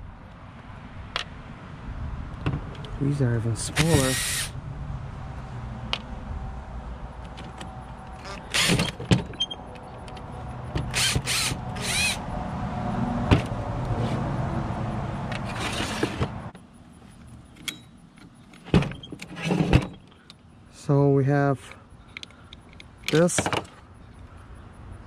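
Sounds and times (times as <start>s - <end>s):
cordless drill running: 4.0s - 4.5s, 10.9s - 12.2s
clicks of parts handled: 22.1s - 23.8s.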